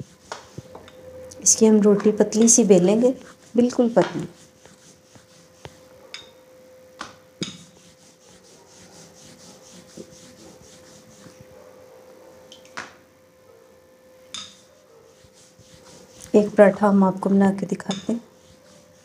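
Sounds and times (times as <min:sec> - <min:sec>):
rolling pin rubbing on dough: 0:00.0 - 0:06.0, 0:07.4 - 0:11.5, 0:14.4 - 0:19.0.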